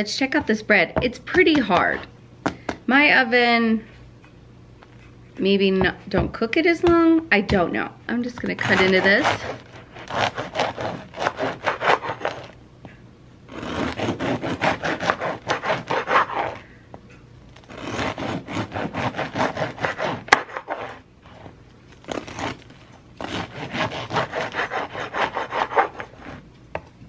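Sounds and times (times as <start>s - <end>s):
bread knife sawing crust: 8.4s - 12.6s, 13.5s - 16.6s, 17.6s - 21.5s, 22.1s - 26.4s.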